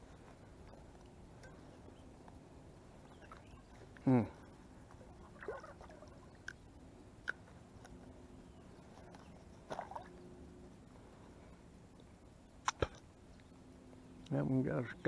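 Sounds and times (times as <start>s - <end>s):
rippling water: 5.0s - 6.6s.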